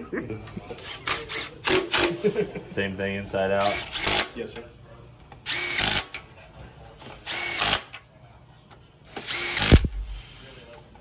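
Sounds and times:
power tool whirring: 5.4s - 6.2s, 7.2s - 8.0s, 9.1s - 10.3s.

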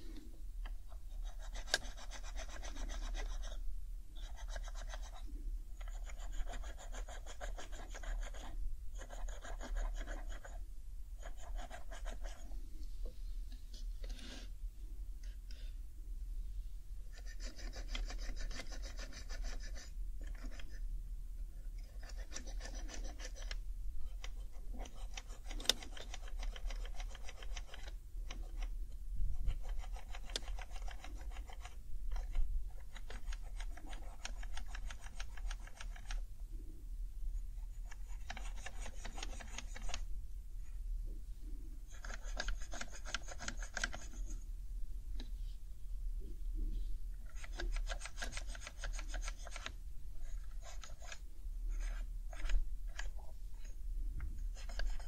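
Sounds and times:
pad rubbing plastic keycaps: 1.1s - 3.6s, 4.2s - 10.6s, 11.2s - 12.4s, 17.1s - 20.8s, 21.8s - 28.7s, 29.4s - 36.2s, 37.7s - 40.0s, 41.9s - 44.4s, 47.2s - 53.2s, 54.4s - 55.0s.

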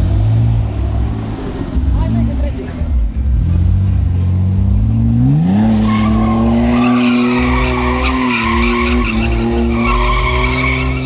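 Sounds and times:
car engine revving: 0.0s - 11.0s
tyres squealing: 5.6s - 11.0s.

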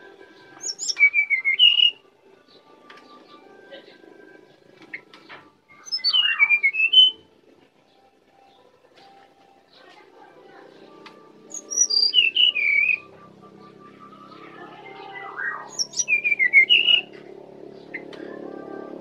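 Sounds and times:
bird singing whistled phrases: 0.6s - 2.0s, 5.7s - 7.2s, 11.5s - 13.1s, 14.2s - 17.1s.

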